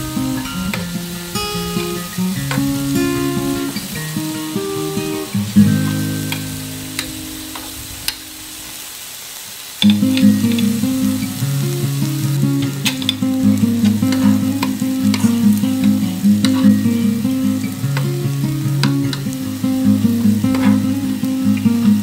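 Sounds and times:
meat sizzling on a grill pan: 0.1s - 22.0s
metal tongs clicking on pan: 5.8s - 8.2s, 12.8s - 13.2s, 13.8s - 15.4s, 16.4s - 16.8s, 18.8s - 19.3s, 20.5s - 20.9s.

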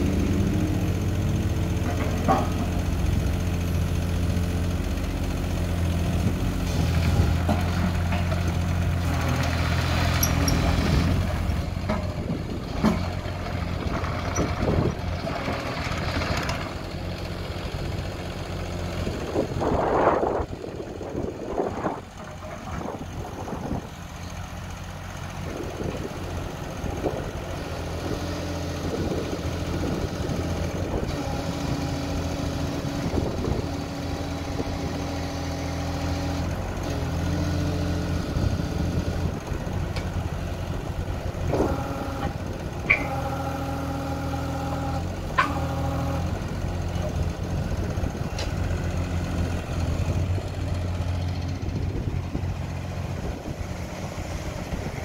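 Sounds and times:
diesel engine running: 0.0s - 55.0s
hydraulic whine: 41.4s - 46.4s.

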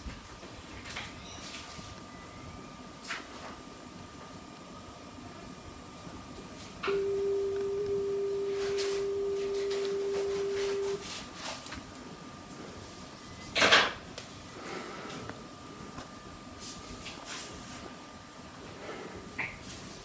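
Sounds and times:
steady single-pitched tone: 6.8s - 11.0s.

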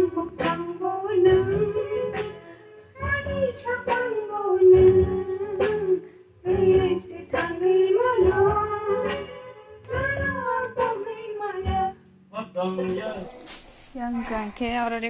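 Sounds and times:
woman singing: 0.0s - 12.0s.

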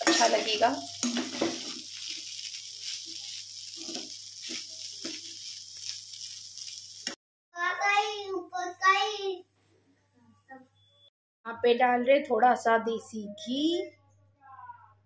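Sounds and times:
metal spatula scraping: 0.0s - 7.0s
food sizzling in a pan: 0.0s - 7.2s.

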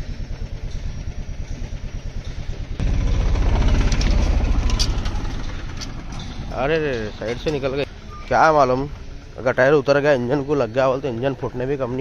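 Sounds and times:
truck engine revving: 2.8s - 8.6s.

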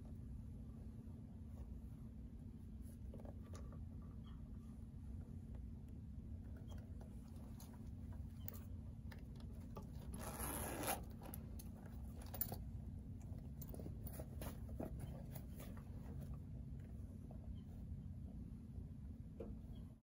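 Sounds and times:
leather rustling: 6.8s - 17.0s
metal zipper pulled: 9.9s - 11.4s.

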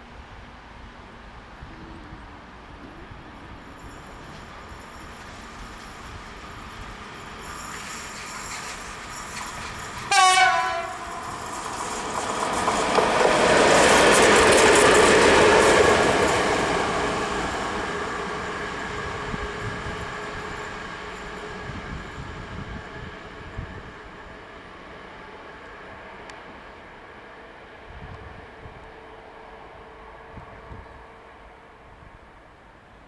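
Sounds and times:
locomotive rumbling and whining past: 1.3s - 32.9s
locomotive horn blast: 10.1s - 11.1s.

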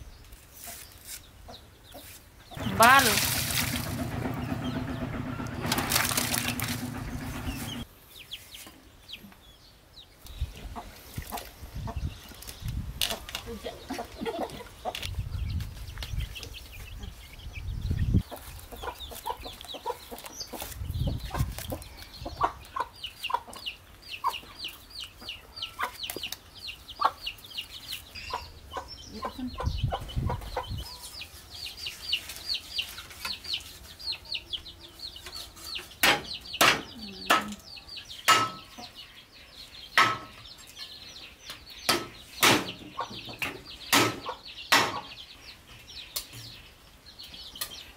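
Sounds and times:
chickens clucking and chirping: 0.0s - 47.9s
water sloshing and dripping: 2.8s - 4.1s, 5.7s - 6.9s
cleaver chopping on wooden block: 43.9s - 45.1s.

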